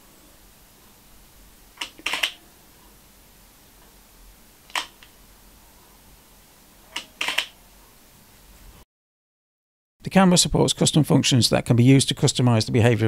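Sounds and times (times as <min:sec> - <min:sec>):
camera shutter click: 0:01.8 - 0:02.4, 0:04.7 - 0:05.1, 0:07.0 - 0:07.6.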